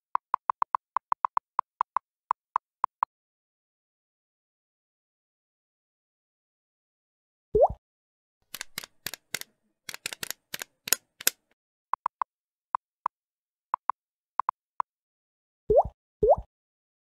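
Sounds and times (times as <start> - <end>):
sharp irregular clicks: 0.1 - 2.0, 8.5 - 12.2
typewriter ticks effect: 8.5 - 11.4.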